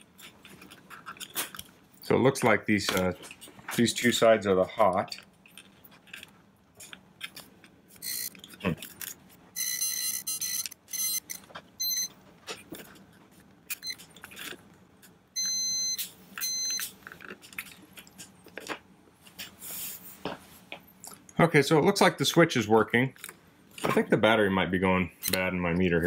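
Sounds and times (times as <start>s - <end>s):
multimeter beeps: 8.0s - 8.4s, 9.6s - 12.1s, 15.4s - 16.9s.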